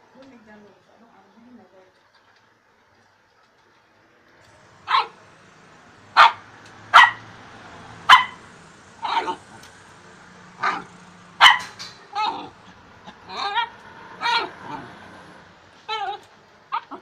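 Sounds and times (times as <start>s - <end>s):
dog barking: 4.8s - 5.2s, 6.1s - 7.4s, 8.0s - 9.6s, 10.6s - 12.6s, 13.3s - 14.9s.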